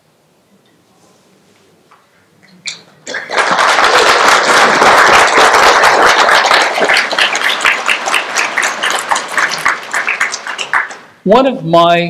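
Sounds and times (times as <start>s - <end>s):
audience applauding: 3.0s - 11.1s.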